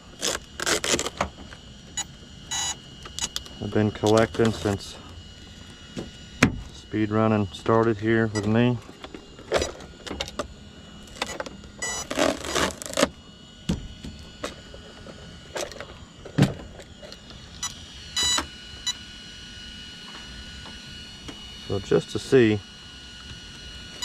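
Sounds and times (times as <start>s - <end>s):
rasping plastic scrape: 12.0s - 13.1s.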